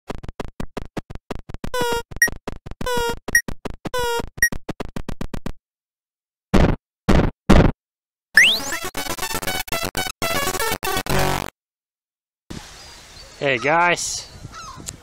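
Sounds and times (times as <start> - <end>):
short high beep: 8.4 - 8.8
buzzy synthesized tones: 8.4 - 11.5
harsh noise bursts: 8.4 - 11.5
short synthesized blips: 8.4 - 11.5.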